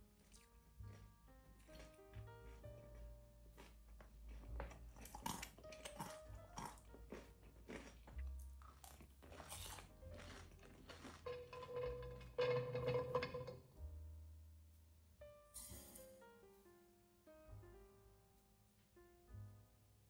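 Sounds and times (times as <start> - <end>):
crunchy food being chewed: 0.0 - 12.3
soft background music: 0.0 - 20.0
nuts clattering onto a plate: 9.4 - 13.7.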